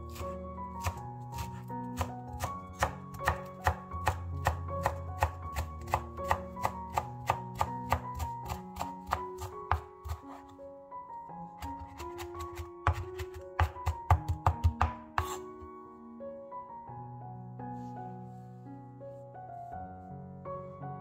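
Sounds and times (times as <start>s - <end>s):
soft background music: 0.0s - 21.0s
knife chopping on wooden board: 0.1s - 10.5s, 11.6s - 15.5s.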